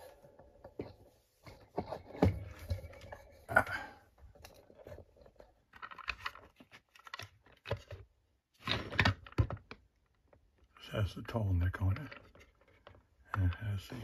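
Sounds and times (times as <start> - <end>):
plastic parts clicking and knocking: 4.2 - 10.7, 11.7 - 14.0.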